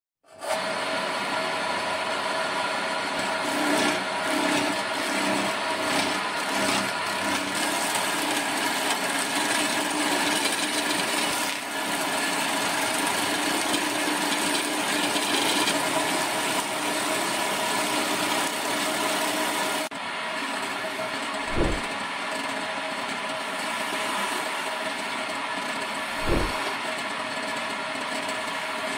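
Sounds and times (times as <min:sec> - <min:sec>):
lathe motor running: 0:02.5 - 0:19.9, 0:21.4 - 0:21.9
chisel scraping spinning wood: 0:03.1 - 0:19.9, 0:20.7 - 0:28.8
low thump: 0:21.5 - 0:21.9, 0:26.2 - 0:26.7.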